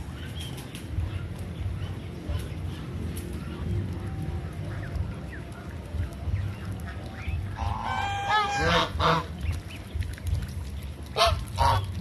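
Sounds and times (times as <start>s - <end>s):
geese honking: 6.7s - 9.8s, 11.1s - 12.0s.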